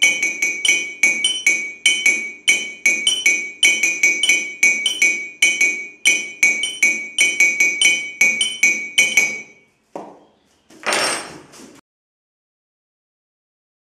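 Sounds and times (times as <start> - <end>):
spoons clinking on ceramic mugs: 0.0 - 9.7.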